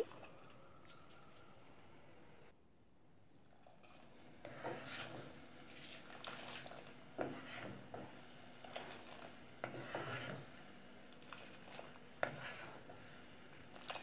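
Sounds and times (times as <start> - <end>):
spatula scraping a pot: 4.4 - 5.2, 7.2 - 7.9, 9.6 - 10.5, 12.2 - 12.9.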